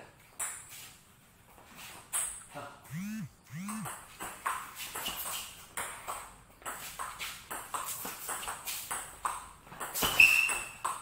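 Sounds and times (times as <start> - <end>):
short high-pitched sound: 2.9 - 3.9
table tennis ball hits: 5.8 - 11.0.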